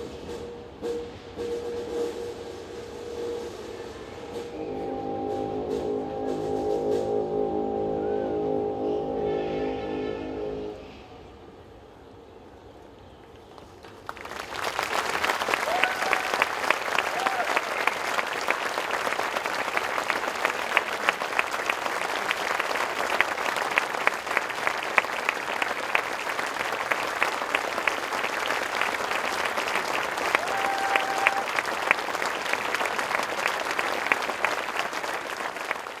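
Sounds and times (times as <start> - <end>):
large audience applauding: 13.5 - 36.0.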